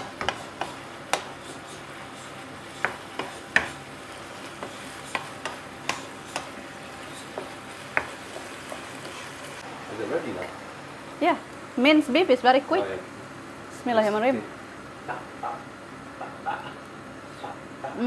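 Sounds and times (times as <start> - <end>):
wooden spoon scraping a pan: 0.0 - 9.6
meat sizzling in a frying pan: 0.0 - 12.8.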